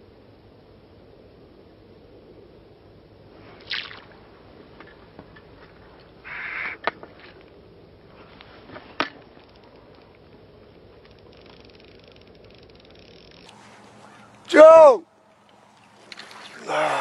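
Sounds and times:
fly line swishing: 3.4 - 5.1, 11.2 - 14.5, 15.8 - 17.0.

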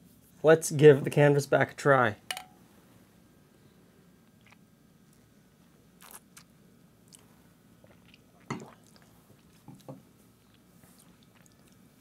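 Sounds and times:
lip smacks and swallows: 4.3 - 5.3, 6.0 - 6.5, 7.1 - 11.9.

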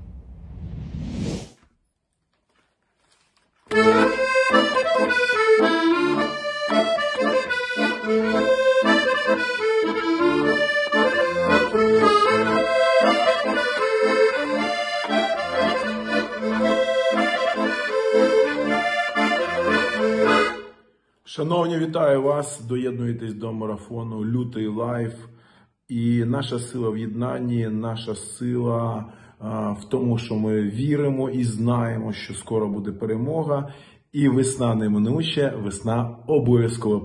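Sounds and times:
solo accordion: 3.7 - 20.9.

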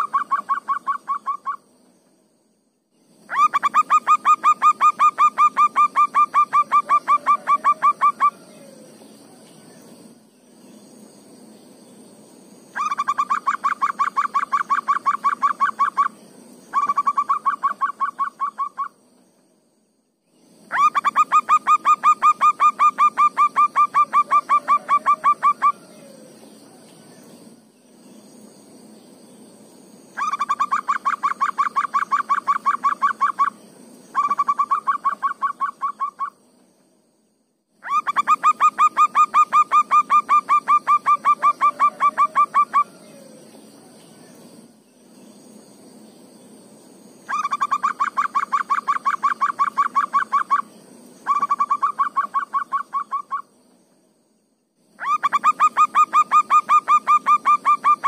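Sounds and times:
dove cooing: 3.3 - 9.0, 20.7 - 26.4, 37.8 - 43.5.

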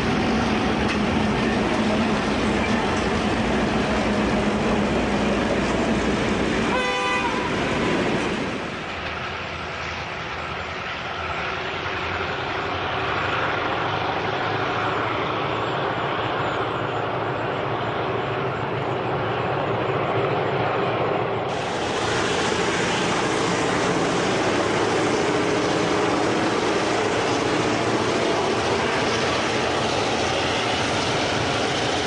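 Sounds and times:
train wheels on rails: 0.0 - 32.0
locomotive horn toot: 6.7 - 7.6.

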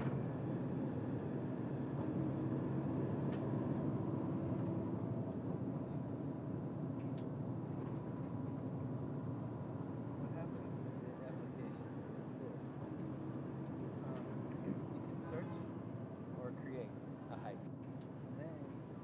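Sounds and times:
car road and engine noise: 0.0 - 19.0.

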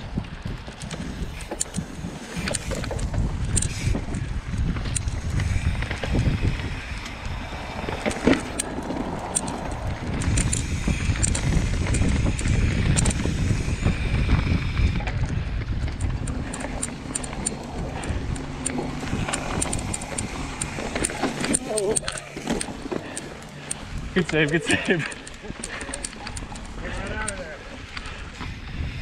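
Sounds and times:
bike clicks and rattles: 0.0 - 29.0
tyres on dirt trail: 0.0 - 29.0
wind buffeting microphone: 0.0 - 29.0.

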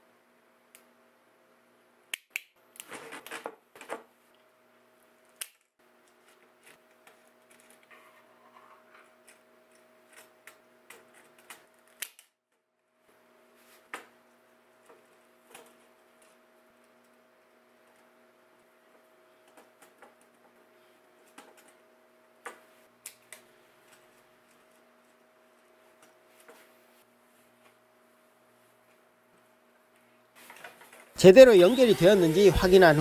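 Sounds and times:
wire strippers clicking and snipping: 5.3 - 7.9, 9.2 - 12.4.

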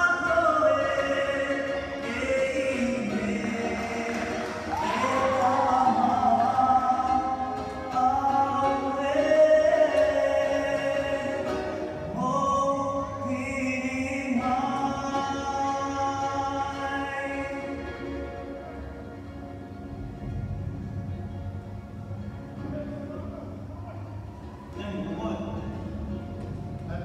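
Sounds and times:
group of voices singing: 0.0 - 18.2.

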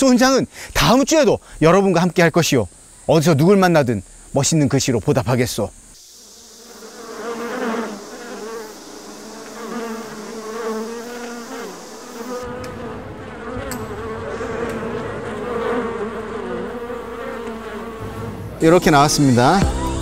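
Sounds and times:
bees buzzing: 5.6 - 20.0.

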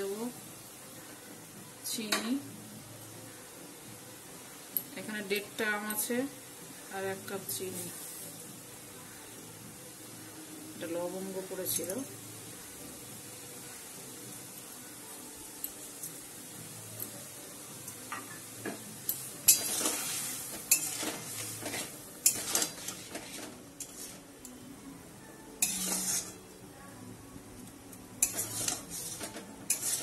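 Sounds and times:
metal spatula scraping pan: 19.5 - 24.2, 25.6 - 26.4, 28.2 - 30.0.

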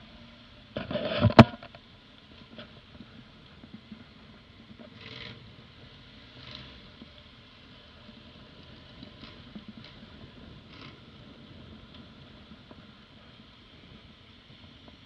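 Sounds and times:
noisy hiss: 0.0 - 15.0
scratchy rustles: 0.8 - 1.6.

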